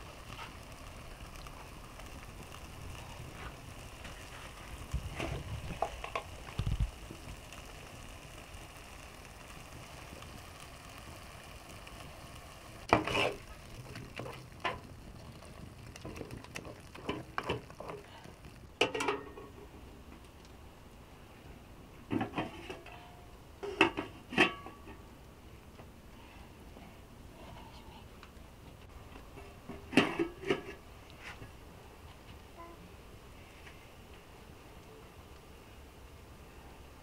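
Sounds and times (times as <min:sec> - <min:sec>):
frying sizzle: 0:00.0 - 0:20.9, 0:28.9 - 0:31.6
metal utensil scraping a pot: 0:12.9 - 0:13.4.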